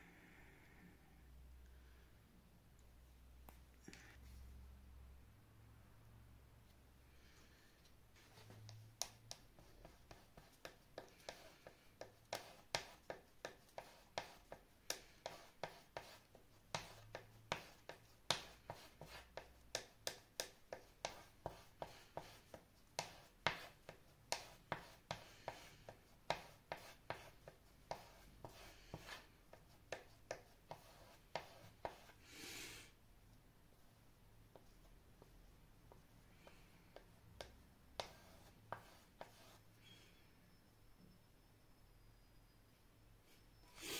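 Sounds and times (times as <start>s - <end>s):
palette knife tapping paint: 8.6s - 32.1s, 35.9s - 39.6s
palette knife scraping: 38.0s - 39.7s.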